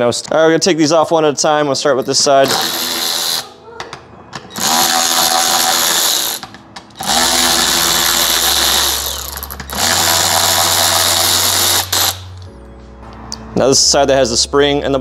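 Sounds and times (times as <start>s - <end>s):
cordless electric ratchet running: 2.4s - 3.6s, 4.5s - 12.4s.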